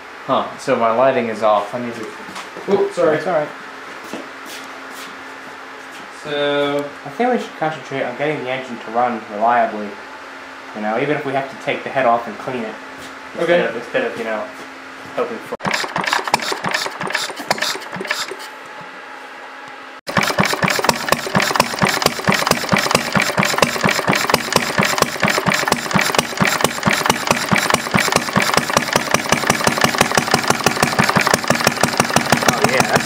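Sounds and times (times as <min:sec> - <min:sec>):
single-cylinder engine running: 0:15.6 - 0:18.5, 0:20.1 - 0:33.0.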